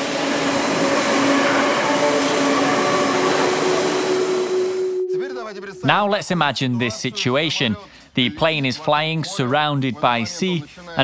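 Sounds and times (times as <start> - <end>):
loud rushing noise: 0.0 - 5.9.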